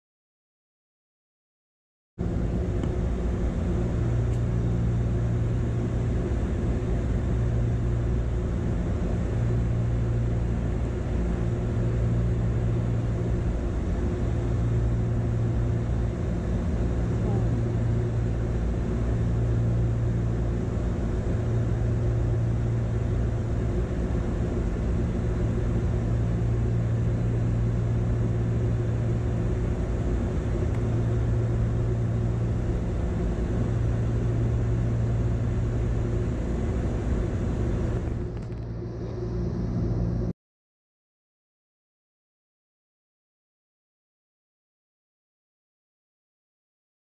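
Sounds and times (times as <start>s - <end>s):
jet cabin drone: 2.2s - 40.4s.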